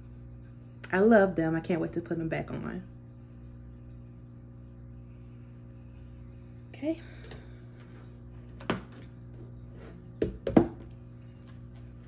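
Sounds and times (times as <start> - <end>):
box knocking against tabletop: 10.2 - 10.9.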